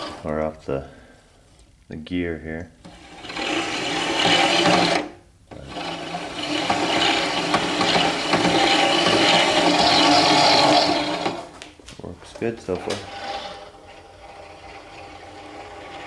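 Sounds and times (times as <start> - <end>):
motor driving roller chain: 0.0 - 0.3, 2.8 - 11.5, 12.8 - 16.0.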